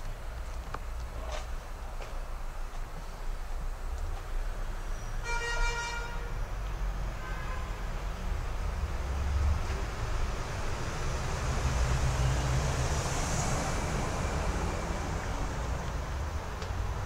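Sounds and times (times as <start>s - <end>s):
traffic rumble: 0.0s - 17.0s
vehicle passing close by: 9.0s - 17.0s.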